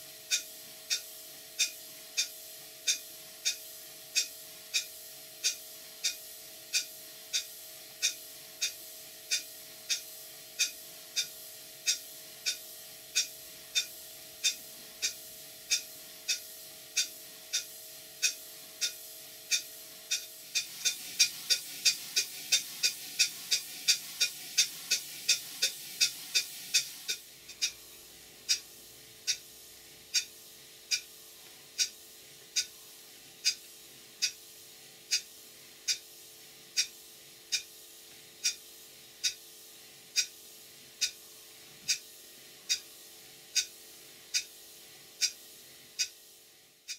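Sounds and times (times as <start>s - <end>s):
model steam engine beating: 0.0s - 27.8s
steam hiss: 4.8s - 27.8s.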